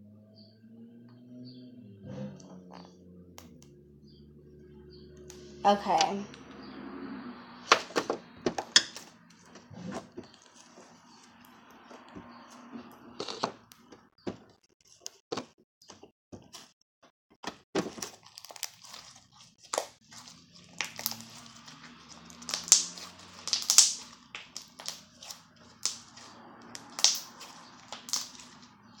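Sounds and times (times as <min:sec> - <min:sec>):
slime popping and clicking: 0:20.8 - 0:21.7, 0:22.4 - 0:28.6.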